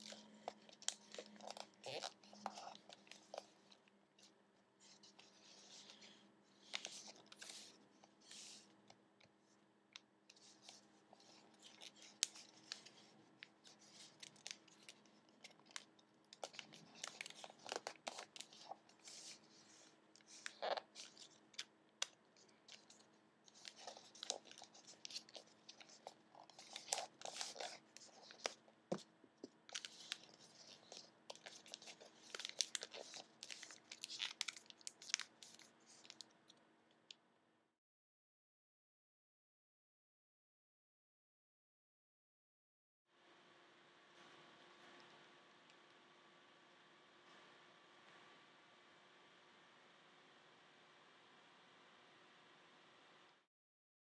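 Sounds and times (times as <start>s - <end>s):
paper rustling and crinkling: 0.0s - 8.7s, 10.3s - 21.6s, 22.4s - 36.3s.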